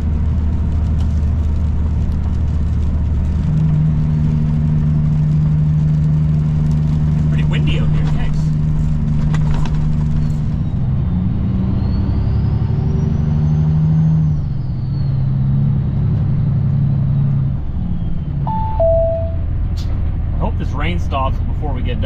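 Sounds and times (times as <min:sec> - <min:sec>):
two-note chime: 0:18.5 - 0:19.5.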